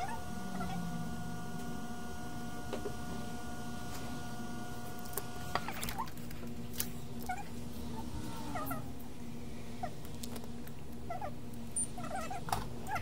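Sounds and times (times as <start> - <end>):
two-note electrical whine: 0.0 - 6.1
steady mechanical hum: 0.0 - 13.0.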